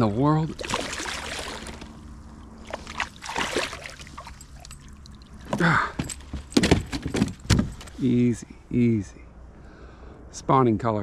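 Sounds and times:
fish splashing at water surface: 0.5 - 5.4
fish flopping on plastic deck: 0.6 - 2.0, 2.6 - 4.6.

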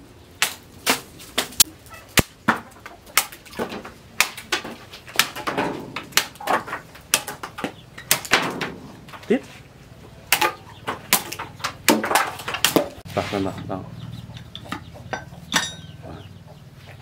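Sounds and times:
knife chopping sugarcane: 0.4 - 9.2, 10.3 - 13.0.

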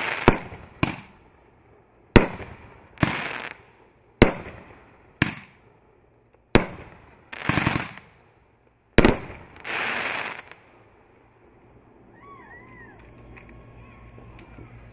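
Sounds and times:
firework bangs: 0.0 - 1.4, 2.1 - 5.6, 6.5 - 8.2, 9.0 - 11.6
firework crackling: 0.0 - 5.7, 6.5 - 14.9.

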